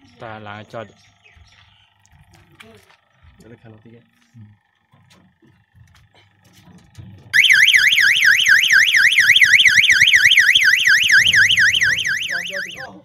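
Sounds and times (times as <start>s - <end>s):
electronic siren warbling: 7.4s - 13.0s.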